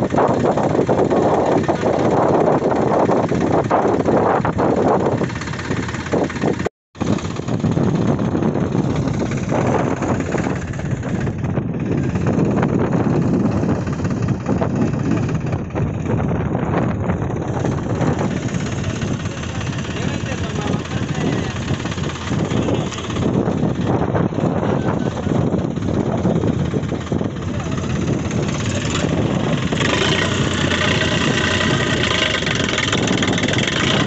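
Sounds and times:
tractor engine running: 0.0 - 34.0.

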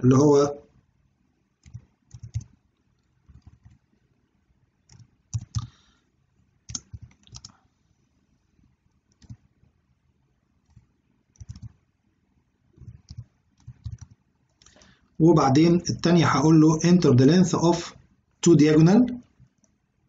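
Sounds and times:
computer keyboard typing: 1.6 - 2.6, 3.3 - 3.8, 4.9 - 5.8, 6.7 - 7.5, 9.1 - 9.4, 10.6 - 11.8, 12.8 - 14.8.

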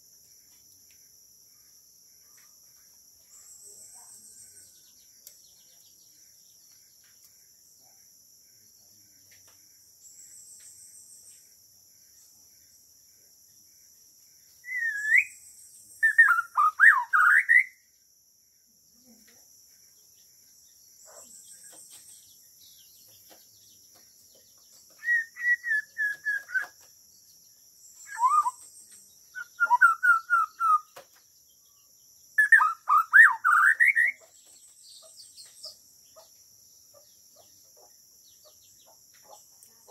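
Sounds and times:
high insect drone: 0.0 - 16.7
bird singing whistled phrases: 14.6 - 15.4, 16.0 - 17.8, 25.0 - 26.8, 28.0 - 31.0, 32.4 - 34.2.

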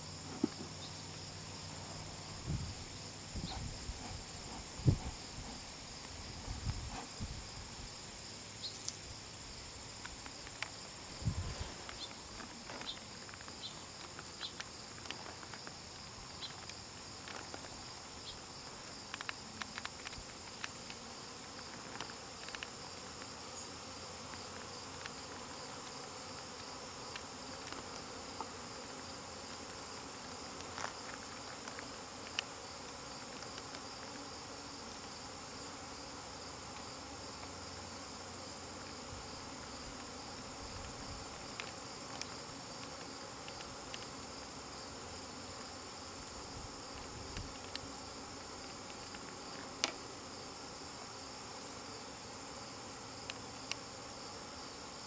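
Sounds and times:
honeybees buzzing: 0.0 - 55.0.

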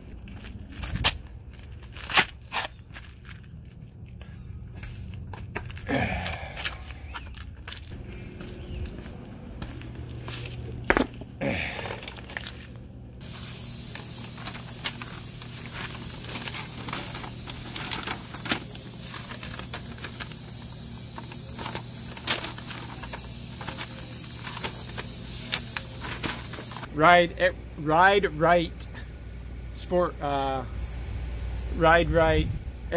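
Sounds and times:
paper booklet crackling: 12.2 - 26.9
steady hiss: 13.2 - 32.9.

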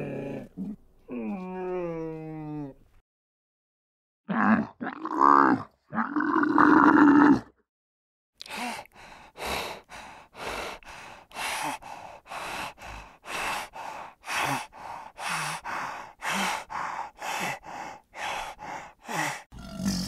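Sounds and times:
hyena low grunt: 0.0 - 2.8, 19.5 - 20.0
hyena breathing in hoarse puffs: 8.5 - 19.5.

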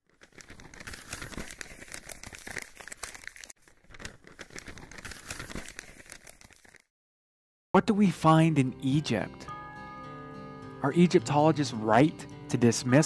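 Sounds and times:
paper crinkling and rustling: 0.0 - 6.9.

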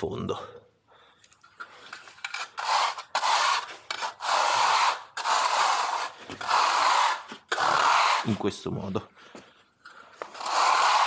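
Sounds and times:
abrasive block rubbing concrete: 1.9 - 8.9, 10.2 - 11.0.

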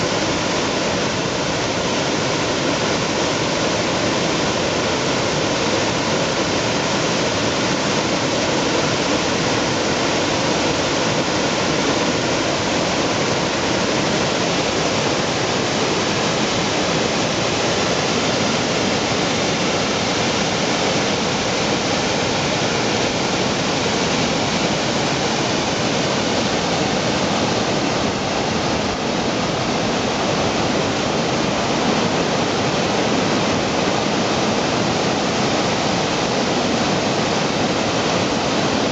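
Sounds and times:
water roaring over a weir: 0.0 - 38.9.

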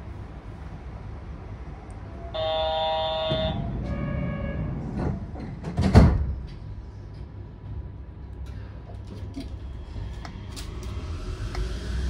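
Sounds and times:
low train hum: 0.0 - 12.0
sliding doors shutting with thump: 3.2 - 6.7.

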